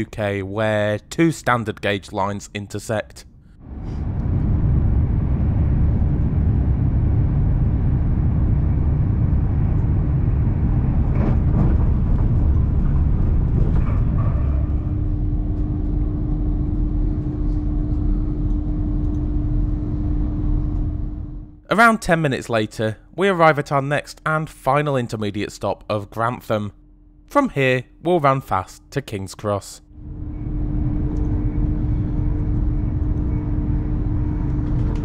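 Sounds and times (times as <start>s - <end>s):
steady low hum: 0.0s - 35.0s
train wheels rumbling on track: 3.7s - 18.0s.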